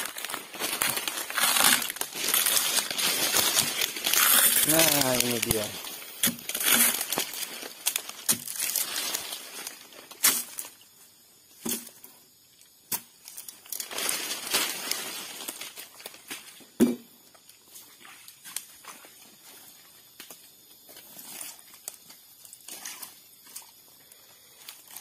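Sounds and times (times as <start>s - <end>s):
fibrous pith crackling and tearing: 0.0s - 10.7s.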